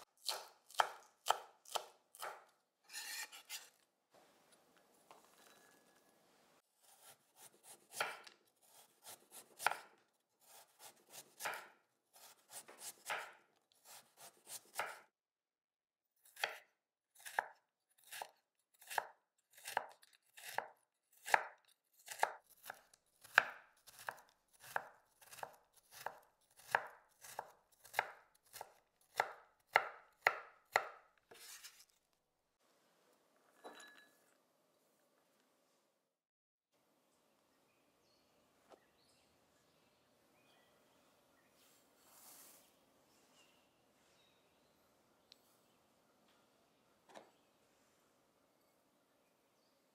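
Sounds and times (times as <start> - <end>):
knife cutting carrot on board: 0.0 - 3.8, 6.8 - 15.1, 16.3 - 32.0.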